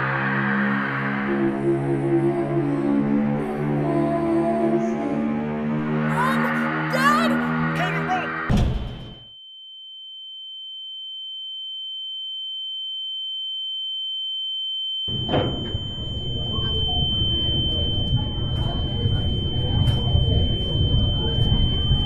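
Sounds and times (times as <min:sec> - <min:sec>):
busy school hallway noise: 0:01.2 - 0:07.6, 0:15.1 - 0:22.0.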